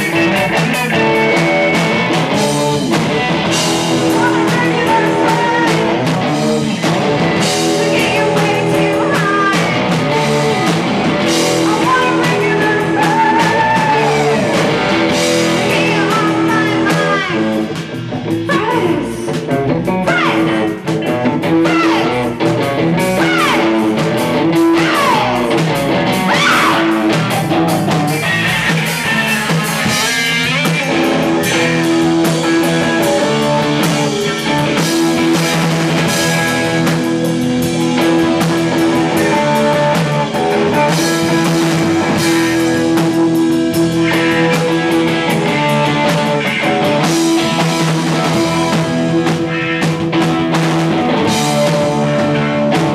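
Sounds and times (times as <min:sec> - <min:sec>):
bass guitar: 0:00.0 - 0:52.9
distorted electric guitars: 0:00.0 - 0:52.9
drum kit: 0:00.0 - 0:52.9.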